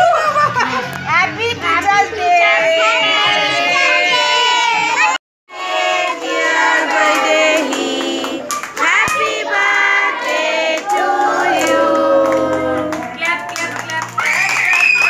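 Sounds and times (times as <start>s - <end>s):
women and children singing: 1.8s - 13.2s
hands clapping: 6.9s - 9.3s, 10.2s - 15.0s.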